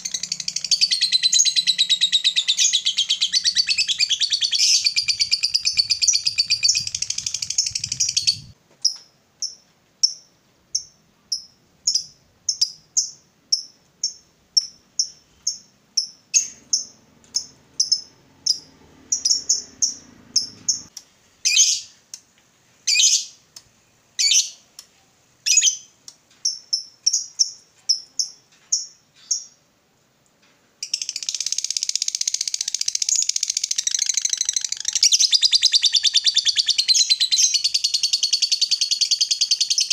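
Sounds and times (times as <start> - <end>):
harsh bird calls: 0.0 - 8.6
lovebird rapid chatter: 0.0 - 8.6, 30.9 - 39.9.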